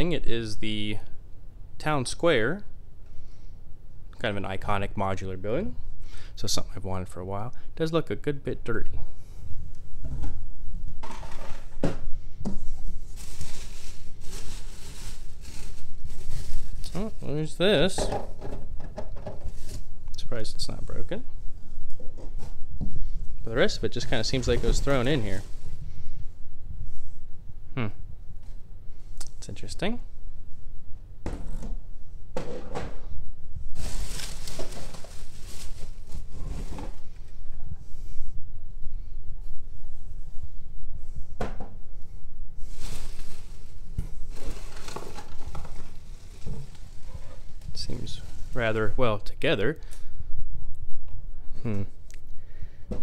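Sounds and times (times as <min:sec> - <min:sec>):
bubble wrap crinkling: 0:12.9 - 0:17.4, 0:33.7 - 0:36.7, 0:42.6 - 0:48.9.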